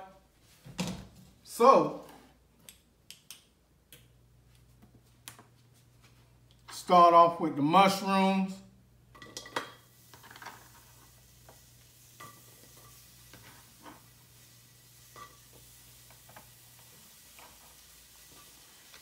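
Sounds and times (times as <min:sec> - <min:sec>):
low steady hum: 0:00.0 - 0:16.9
frying sizzle: 0:09.2 - 0:19.0.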